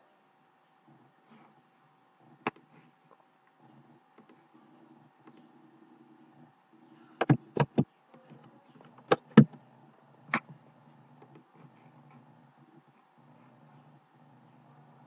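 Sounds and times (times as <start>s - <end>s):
faint low hum: 0.0s - 15.0s
computer mouse clicking: 4.2s - 4.4s.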